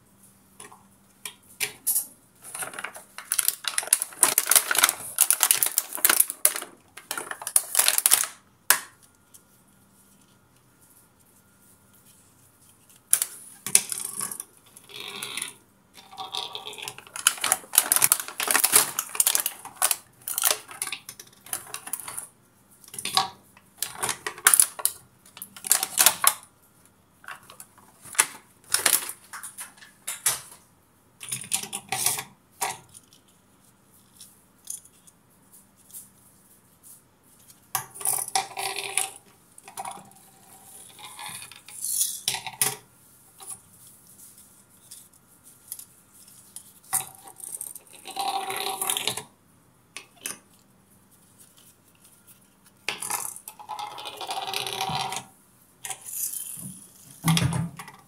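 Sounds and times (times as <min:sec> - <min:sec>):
plastic packaging crinkling: 0:02.4 - 0:09.4, 0:16.2 - 0:22.2, 0:23.8 - 0:26.4, 0:27.4 - 0:30.6.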